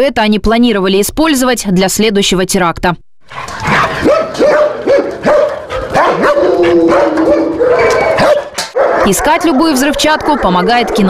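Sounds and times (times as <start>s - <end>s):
dogs barking and yelping: 3.3s - 11.0s
dogs whining: 3.3s - 11.0s.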